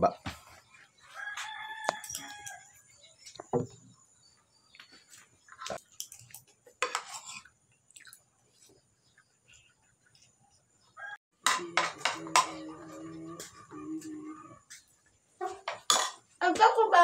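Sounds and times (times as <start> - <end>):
rooster crowing: 1.1 - 2.8, 11.0 - 11.2
spoon clinking on a plate: 15.7 - 16.2.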